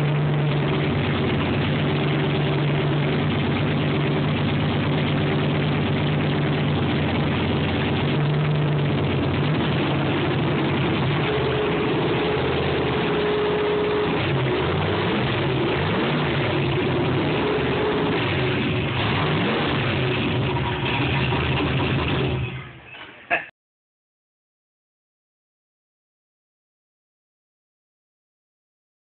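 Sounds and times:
car engine idling: 0.0 - 22.9.

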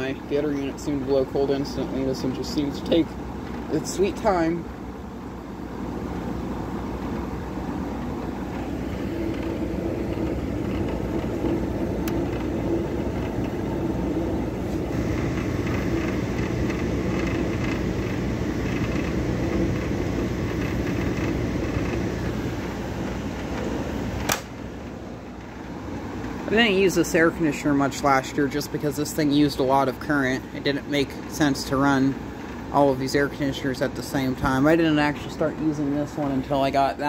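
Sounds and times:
air conditioner humming: 0.0 - 37.0
sharp click: 24.2 - 24.6.

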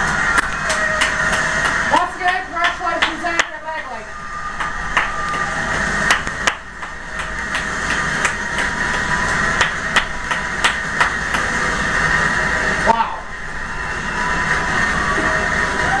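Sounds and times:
hand claps: 0.0 - 3.6, 4.6 - 11.6
crowd noise from television: 0.0 - 16.0.

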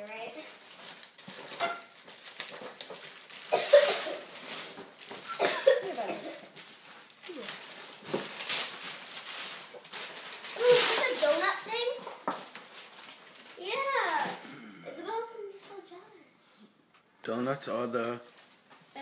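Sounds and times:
wrapping paper tearing: 0.0 - 14.4.

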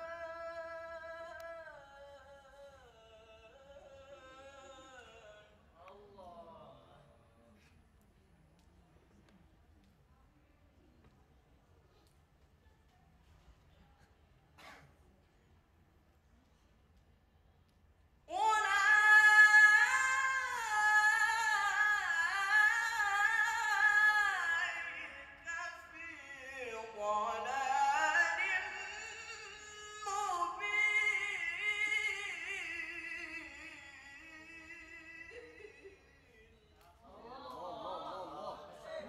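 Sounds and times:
man reciting melodically: 0.0 - 7.2, 18.3 - 39.0.

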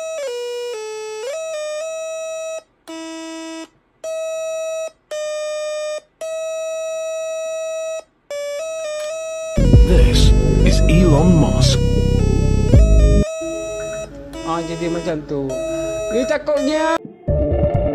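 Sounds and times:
buzzy electronic melody: 9.6 - 17.0.

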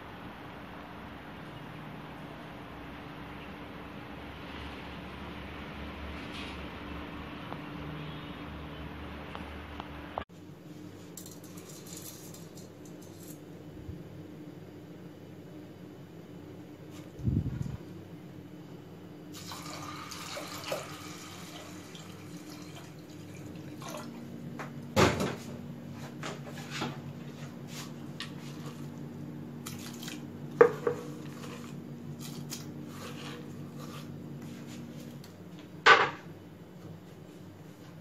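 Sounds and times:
water pouring into pressure cooker: 19.4 - 23.5.

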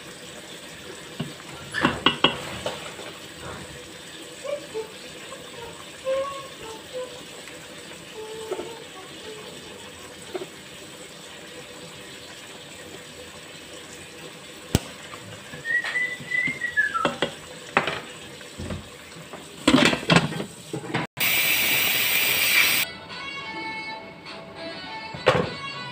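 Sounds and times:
short whistled tone: 15.6 - 17.2.

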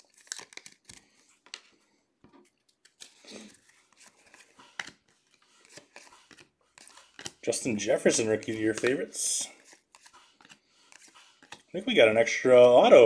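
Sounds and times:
trading cards flipped: 0.0 - 1.7, 2.5 - 9.0, 9.6 - 11.7.

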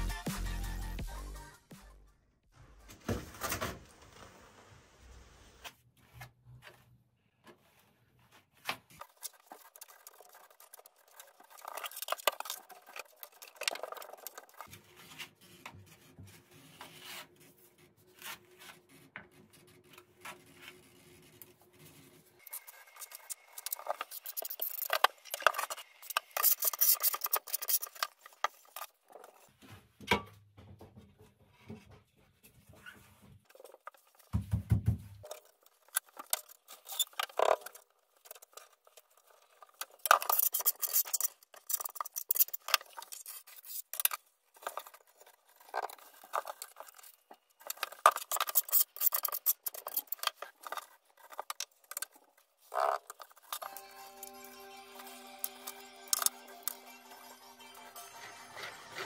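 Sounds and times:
trowel scraping mortar: 40.0 - 53.8, 57.8 - 59.0.

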